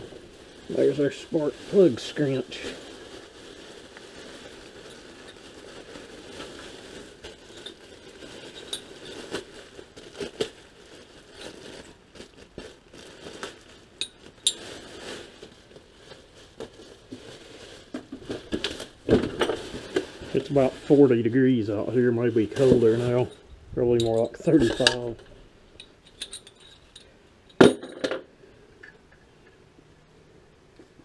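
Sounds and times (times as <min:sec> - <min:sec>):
plastic packaging rustling: 0:00.0 - 0:27.0
small hard parts clinking: 0:07.4 - 0:09.2, 0:23.2 - 0:28.2.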